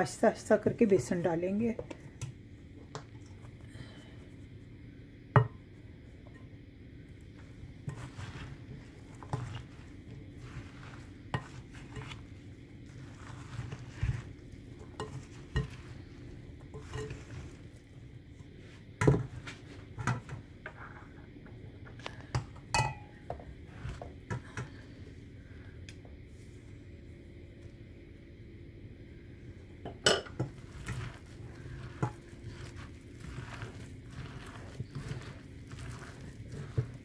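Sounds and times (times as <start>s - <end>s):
spatula scraping in bowl: 7.8s - 17.9s, 30.3s - 37.0s
spatula tapping glass bowl: 22.7s - 23.1s.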